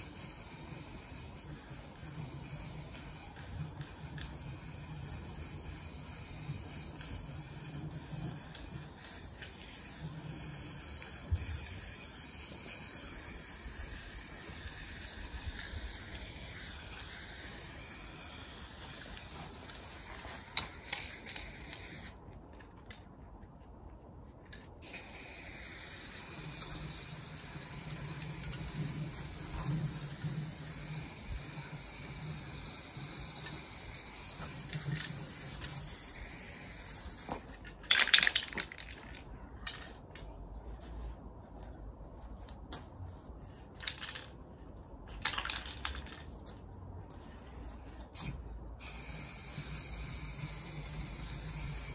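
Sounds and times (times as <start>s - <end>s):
spray can hissing: 0.0s - 22.2s, 24.8s - 38.7s, 48.1s - 51.9s.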